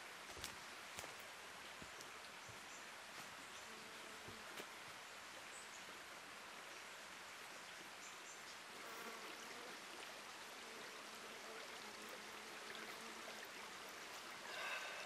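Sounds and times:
creek trickling: 4.6s - 15.0s.

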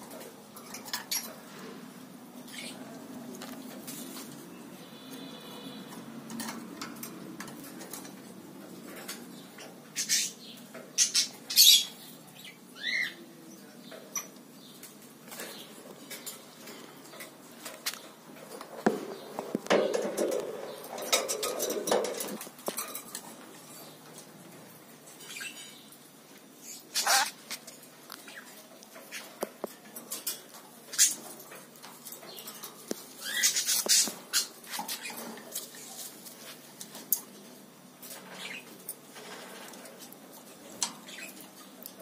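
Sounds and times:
rustling and clattering: 3.1s - 4.6s, 13.9s - 26.2s, 27.0s - 42.0s
bird chirp: 4.4s - 6.5s, 9.0s - 16.8s, 25.2s - 26.0s, 32.2s - 35.3s, 38.1s - 38.8s, 41.0s - 41.8s
beak and claws clicking on metal bars: 19.4s - 26.1s, 26.8s - 42.0s.

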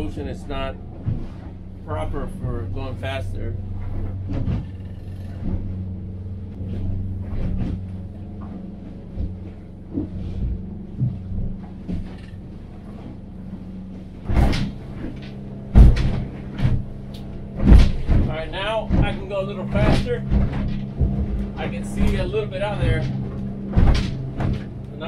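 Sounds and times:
boat engine running: 0.0s - 25.0s
boat hull banging on waves: 0.0s - 25.0s.

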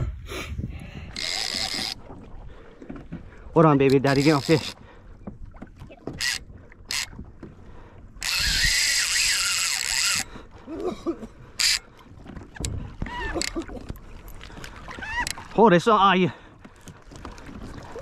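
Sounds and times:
fishing reel drag rasping: 1.1s - 2.0s, 3.9s - 4.8s, 6.2s - 7.1s, 8.2s - 10.3s, 11.6s - 11.8s
rod and reel clicks and knocks: 1.1s - 2.0s, 3.8s - 4.8s, 6.1s - 7.5s, 8.2s - 10.3s, 11.6s - 11.8s.

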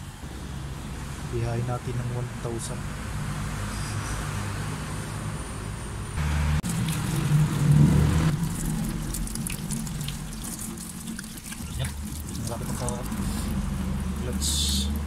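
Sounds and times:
low vehicle hum: 0.0s - 15.0s
tap water splashing in metal sink: 8.4s - 13.2s.

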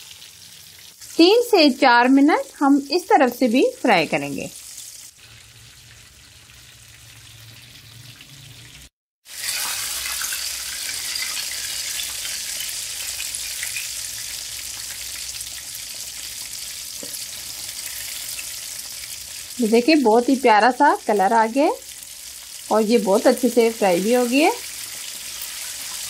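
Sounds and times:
fish deep-frying in hot oil: 0.0s - 26.0s.

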